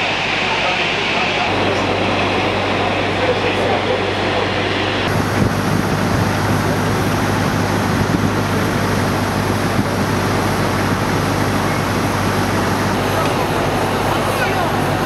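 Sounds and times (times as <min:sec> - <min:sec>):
low hum: 0:00.0 - 0:15.0
machinery roar: 0:00.0 - 0:15.0.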